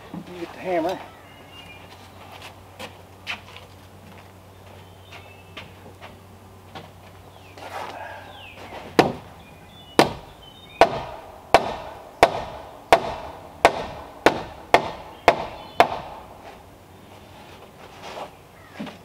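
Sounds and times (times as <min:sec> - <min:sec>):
hammer blows on timber: 0:09.9 - 0:16.6.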